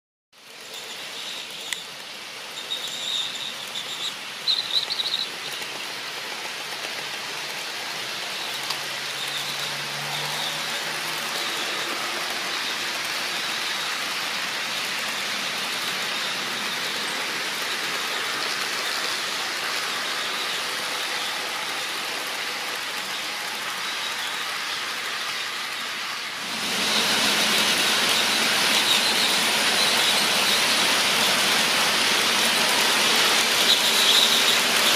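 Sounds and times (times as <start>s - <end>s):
model locomotive motors whirring: 0.4s - 34.9s
model train wheels rattling: 0.4s - 34.9s
faint high squeals: 2.5s - 5.6s.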